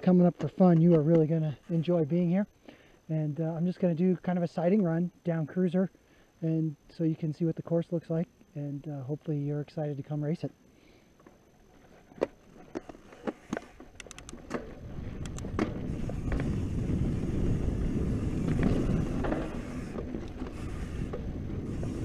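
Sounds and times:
bike clicks and knocks: 0.1 - 1.4, 11.2 - 17.6, 18.2 - 22.0
knobby tyres rumbling on dirt: 11.3 - 22.0.

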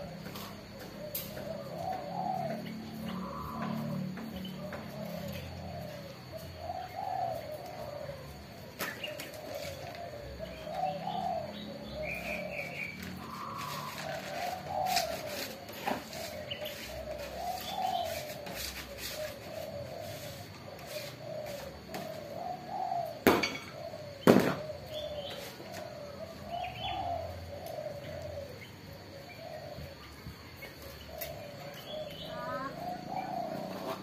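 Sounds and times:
doves cooing: 0.0 - 34.0
small birds chirping: 0.0 - 34.0
sharp knocks: 23.2 - 24.6.

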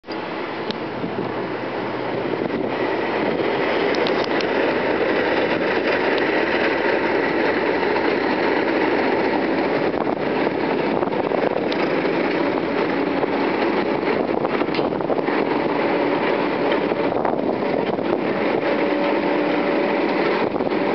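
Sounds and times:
diesel locomotive engine running: 0.0 - 20.9
short clicks from train: 0.1 - 0.8, 3.6 - 9.6, 11.2 - 12.9, 14.6 - 15.0.

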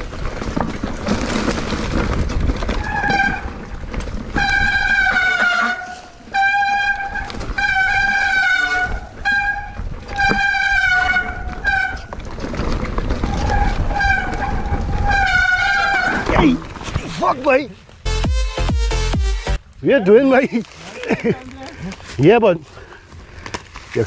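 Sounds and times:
horn blasts: 4.4 - 12.1.

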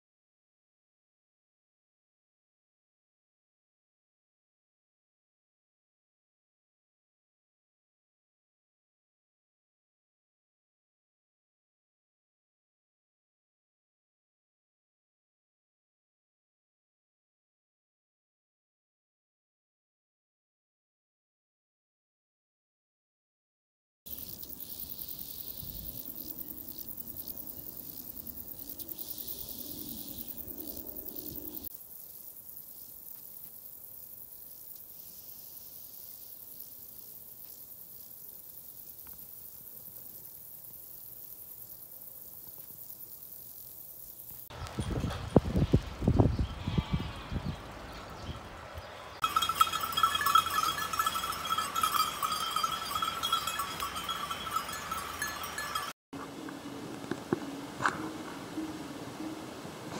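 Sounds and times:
insects chirring: 24.1 - 44.8, 49.2 - 55.9
sheep bells clanking: 49.2 - 56.0.

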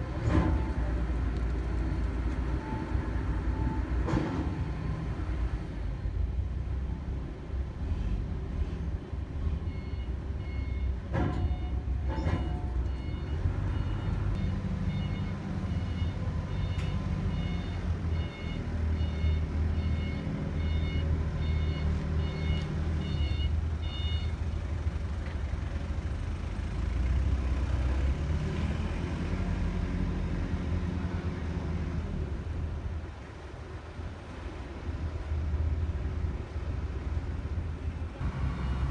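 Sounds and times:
crane diesel engine running: 0.0 - 28.0, 30.0 - 38.9
electronic warning beeps: 12.4 - 24.3.

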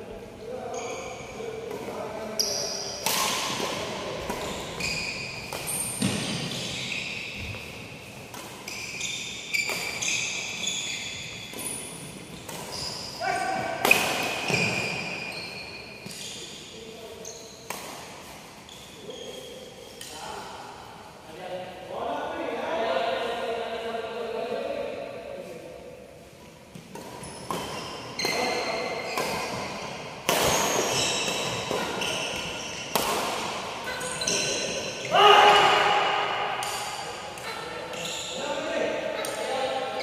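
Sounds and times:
sneakers squeaking on wooden court: 0.6 - 1.4, 2.2 - 18.0, 18.6 - 20.1, 26.8 - 35.1, 37.4 - 38.6
racket striking shuttlecock: 11.4 - 12.9, 13.8 - 15.2, 29.1 - 33.8.

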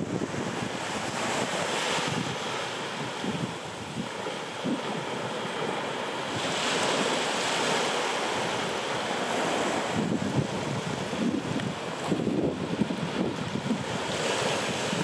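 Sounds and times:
sea waves washing on beach: 0.0 - 15.0.

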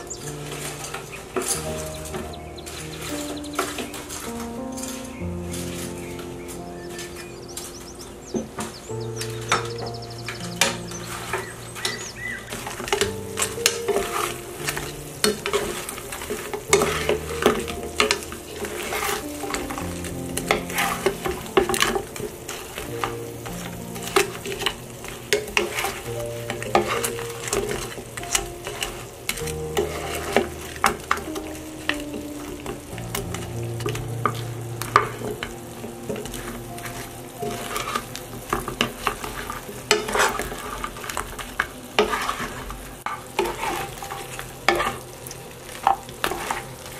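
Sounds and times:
sauce sizzling: 0.0 - 46.9
wooden utensils scraping frying pan: 0.0 - 46.9.

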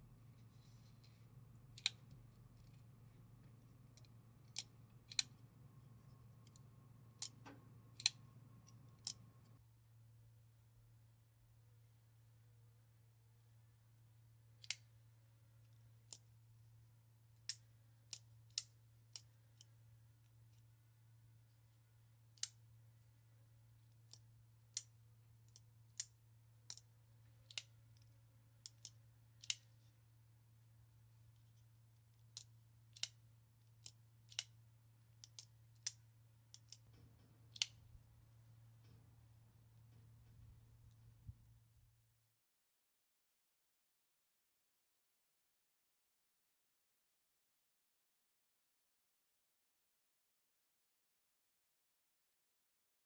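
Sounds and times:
faint low hum: 0.0 - 42.3
folding knife clicking open and closed: 1.8 - 2.8, 4.0 - 5.4, 7.2 - 9.2.

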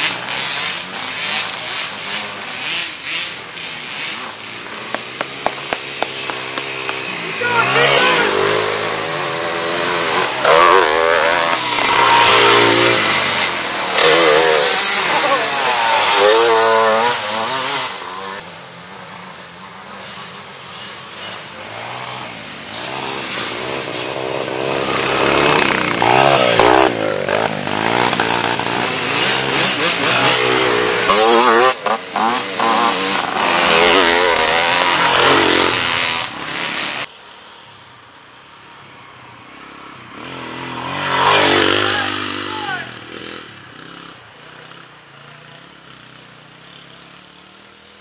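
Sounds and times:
dirt bike engines revving: 0.0 - 48.0.

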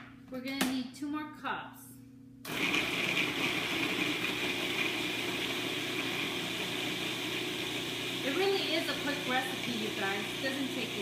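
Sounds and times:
food processor motor running: 2.5 - 11.0.

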